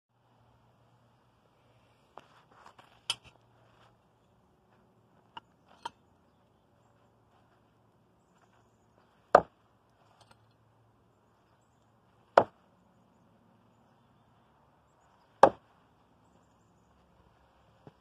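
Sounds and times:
blades striking wooden log: 0:09.3 - 0:09.5, 0:12.3 - 0:12.6, 0:15.4 - 0:15.7.

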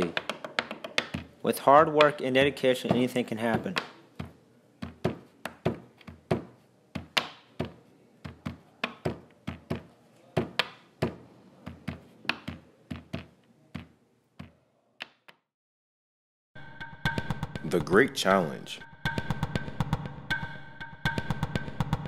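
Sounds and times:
sharp taps and knocks: 0:00.0 - 0:01.4, 0:02.8 - 0:15.4.

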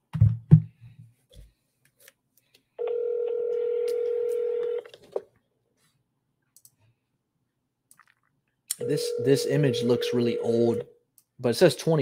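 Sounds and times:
phone ringback tone: 0:02.8 - 0:04.8, 0:08.8 - 0:10.8.

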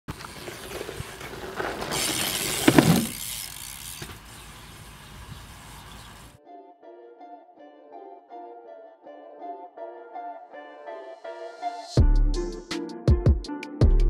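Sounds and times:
rushing rattling noise: 0:00.1 - 0:05.0.

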